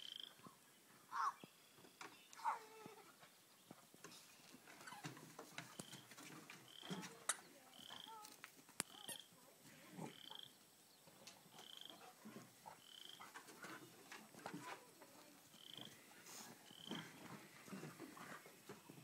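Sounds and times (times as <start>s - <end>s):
small animal buzzy trill: 7.8s - 9.3s.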